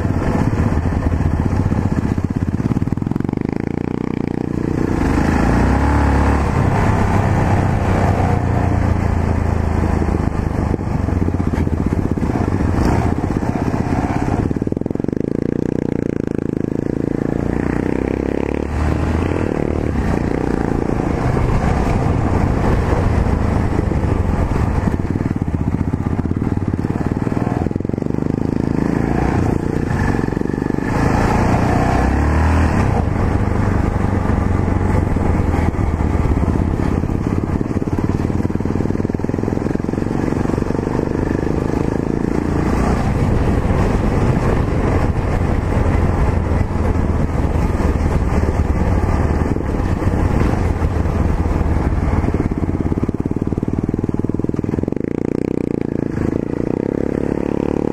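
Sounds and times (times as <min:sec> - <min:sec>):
motorcycle engine rumbling: 0:00.0 - 0:57.9.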